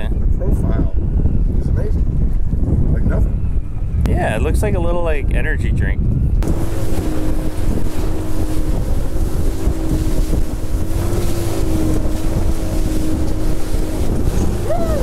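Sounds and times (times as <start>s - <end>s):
hull rumbling in waves: 0.0s - 15.0s
wind buffeting microphone: 0.0s - 15.0s
boat engine drone: 6.4s - 15.0s.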